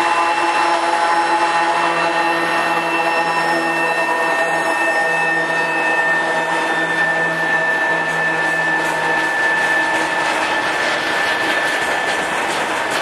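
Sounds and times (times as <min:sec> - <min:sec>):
diesel locomotive engine drone: 0:00.0 - 0:13.0
freight wagon wheels clattering: 0:10.0 - 0:13.0.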